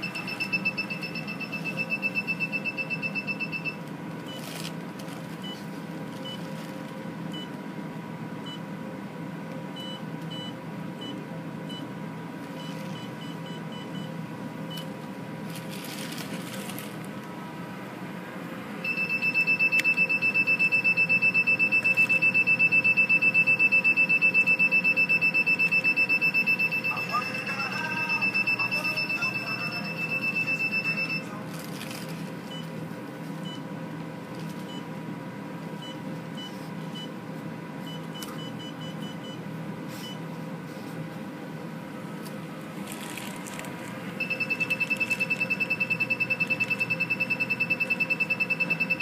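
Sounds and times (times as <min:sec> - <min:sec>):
rapid machine beeping: 0:00.0 - 0:04.4, 0:18.8 - 0:31.4, 0:44.2 - 0:49.0
steady machine hum: 0:00.0 - 0:49.0.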